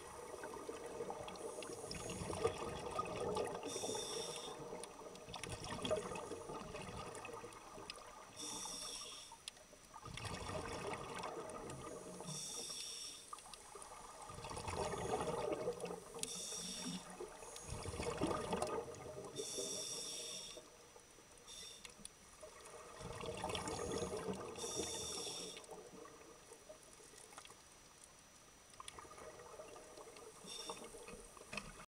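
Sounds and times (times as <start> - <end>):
gurgle of exhaled bubbles: 0.0 - 3.7, 4.6 - 8.3, 10.0 - 12.2, 13.8 - 16.1, 17.1 - 19.4, 22.5 - 25.1
scuba regulator inhale hiss: 3.6 - 4.8, 8.3 - 9.4, 11.9 - 13.4, 16.2 - 17.9, 19.3 - 20.8, 21.4 - 22.0, 23.8 - 25.8, 30.4 - 31.0.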